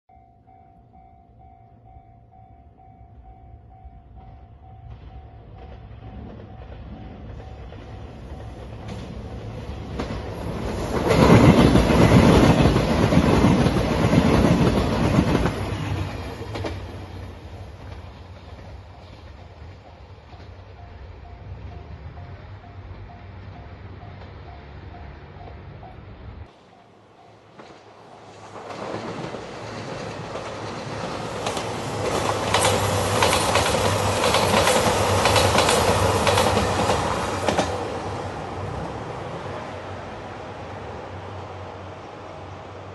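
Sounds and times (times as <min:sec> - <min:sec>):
train passing: 0:00.1 - 0:42.9
wheels clacking over rail joints: 0:05.5 - 0:38.5
diesel engines humming: 0:15.6 - 0:28.6.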